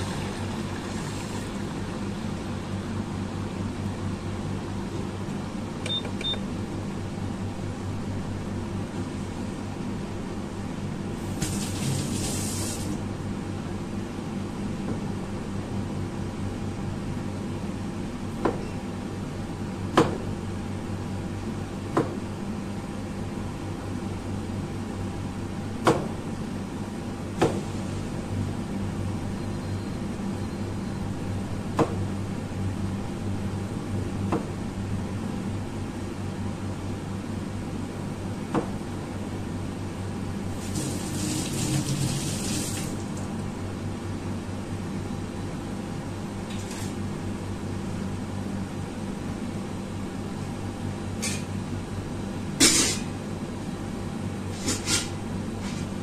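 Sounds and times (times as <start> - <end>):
water boiling in a pan: 0.0 - 2.7, 40.6 - 43.1
steady mechanical hum: 0.0 - 56.0.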